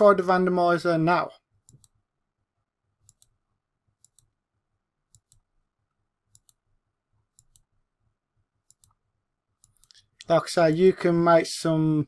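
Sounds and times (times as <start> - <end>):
computer mouse clicks: 1.6 - 2.0, 3.0 - 3.4, 4.0 - 4.4, 5.1 - 5.5, 6.3 - 6.6, 7.3 - 7.8, 8.6 - 9.0, 9.6 - 10.3.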